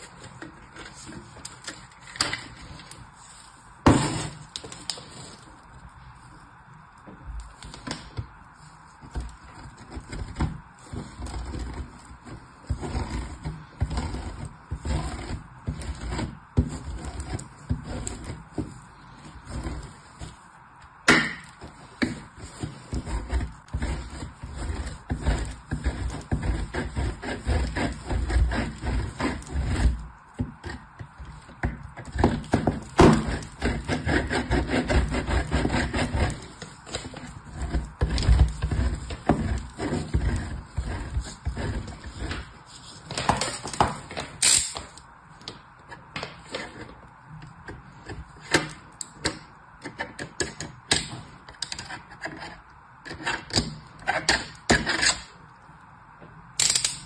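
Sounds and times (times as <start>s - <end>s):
soap grated on metal grater: 9.1s - 20.4s, 21.3s - 42.6s.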